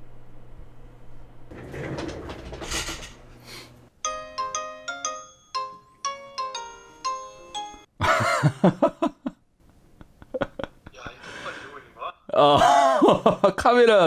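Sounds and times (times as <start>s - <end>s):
phone ringing melody: 4.0s - 7.9s.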